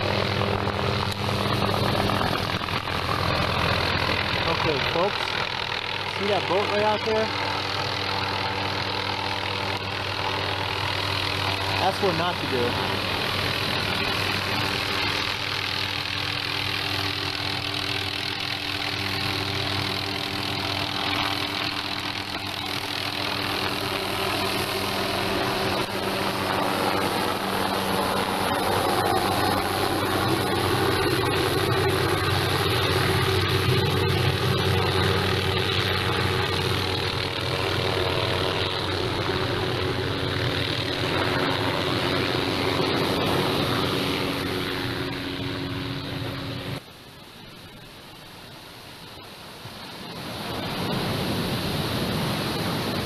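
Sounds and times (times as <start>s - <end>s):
engine humming: 0.0s - 46.9s.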